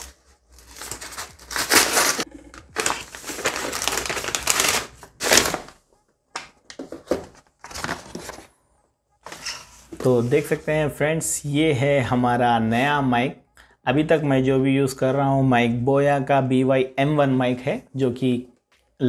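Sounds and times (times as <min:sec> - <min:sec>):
paper crinkling and rustling: 0:00.0 - 0:05.8, 0:06.8 - 0:08.5.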